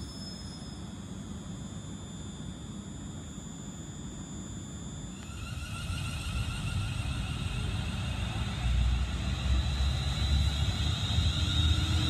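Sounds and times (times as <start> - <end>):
train motors whining: 5.2 - 12.0
wheels rumbling on track: 5.6 - 12.0.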